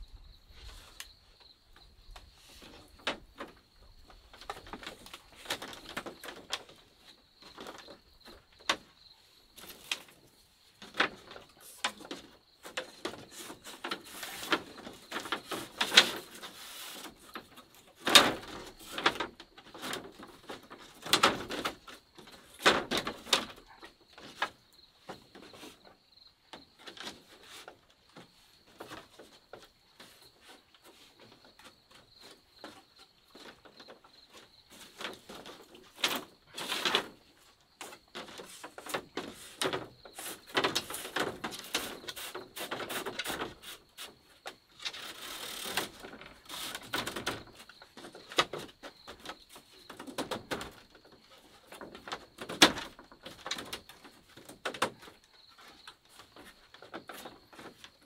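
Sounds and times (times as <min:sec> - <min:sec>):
bamboo clatters: 0:00.5 - 0:58.0
bamboo strips clicking on bamboo: 0:37.8 - 0:47.6.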